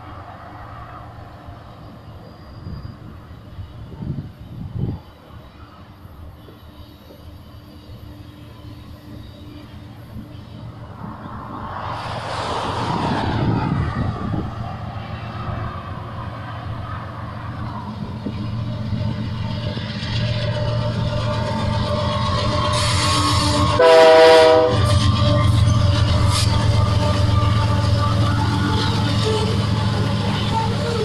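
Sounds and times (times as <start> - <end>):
diesel locomotive drone: 0.0 - 31.0
locomotive air horn blast: 22.1 - 28.3.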